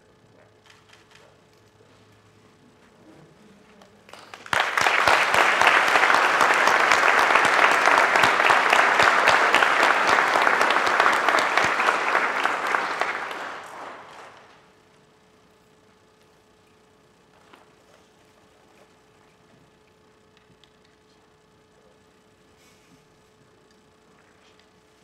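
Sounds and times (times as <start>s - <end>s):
audience applauding: 4.1s - 14.6s.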